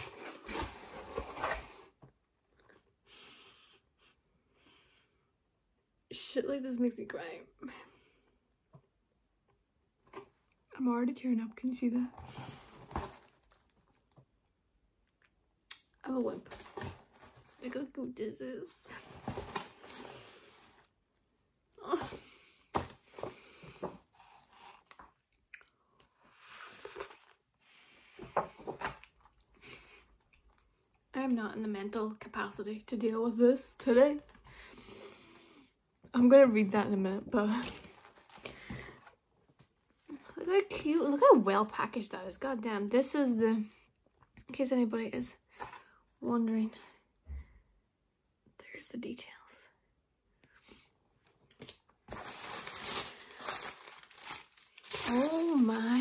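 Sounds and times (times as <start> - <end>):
cardboard box being opened: 0.0 - 1.9
cardboard packaging rustling: 0.0 - 1.9, 12.2 - 14.2, 16.1 - 17.9, 18.9 - 20.9, 37.5 - 39.2, 51.5 - 56.0
person sniffling and breathing unsteadily: 3.0 - 5.2.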